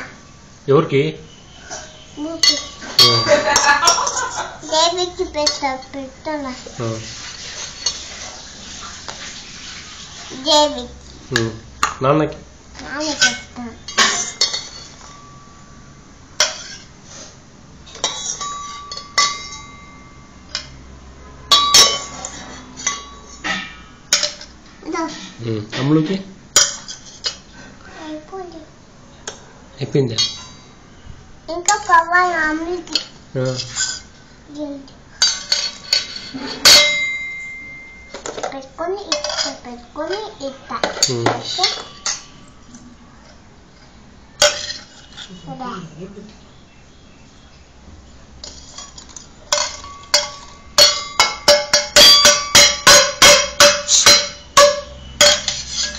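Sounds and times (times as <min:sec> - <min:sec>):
metal vessels clinking together: 0:01.7 - 0:04.5, 0:13.1 - 0:15.6, 0:16.4 - 0:16.9, 0:17.8 - 0:25.9, 0:26.6 - 0:27.5, 0:30.0 - 0:30.8, 0:35.2 - 0:42.7, 0:44.4 - 0:45.4, 0:48.4 - 0:55.9
loud metallic clang: 0:49.5 - 0:55.9.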